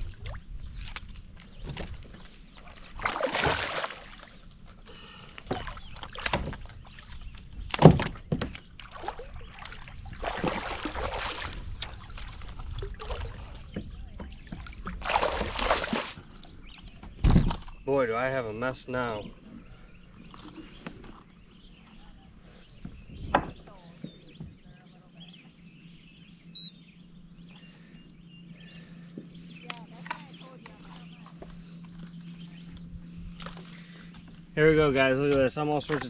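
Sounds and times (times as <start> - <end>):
fish thrashing and splashing: 2.8 - 7.1, 8.8 - 13.6, 14.4 - 16.2.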